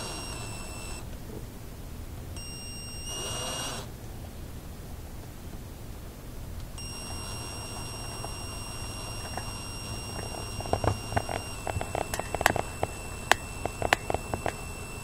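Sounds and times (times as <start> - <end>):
drill high-pitched whine: 0.0 - 1.0, 2.4 - 3.9, 6.8 - 15.0
motor noise rush: 0.0 - 1.4, 6.8 - 15.0.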